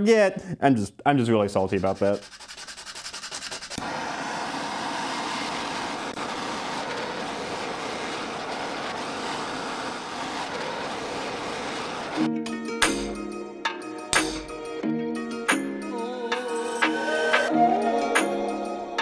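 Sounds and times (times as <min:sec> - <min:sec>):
sandpaper strokes on steel: 0:01.6 - 0:03.9
gas torch hissing: 0:03.8 - 0:12.2.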